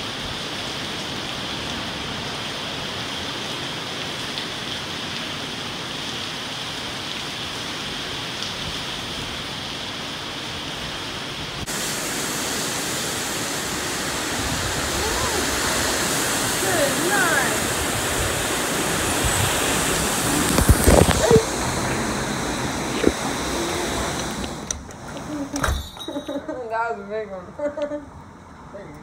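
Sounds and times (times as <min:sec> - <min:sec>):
hurricane wind: 0:00.0 - 0:25.6
driving rain: 0:00.0 - 0:25.7.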